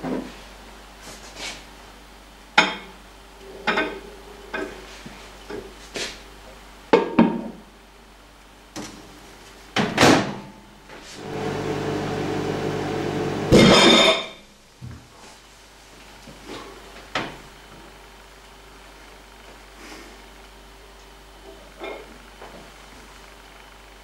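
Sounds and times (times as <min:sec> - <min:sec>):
microwave humming: 0:11.2 - 0:14.8
plate and cover clattering: 0:13.6 - 0:14.3.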